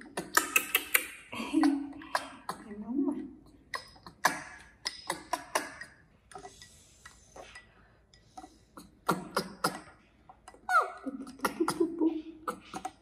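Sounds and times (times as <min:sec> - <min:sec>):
spoon stirring in a glass: 0:05.8 - 0:09.0.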